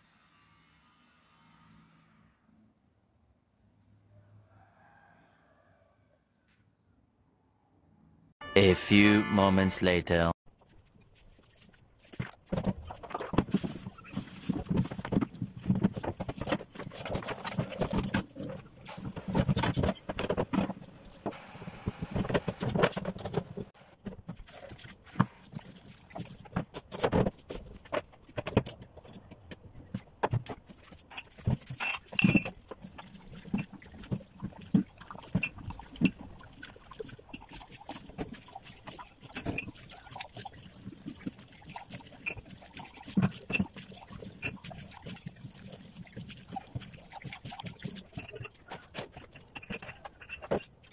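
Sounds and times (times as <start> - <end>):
kitchenware knocks and clatters: 12.2 - 21.3, 26.3 - 36.2, 47.6 - 50.9
water splashes: 24.4 - 27.9, 30.6 - 50.9.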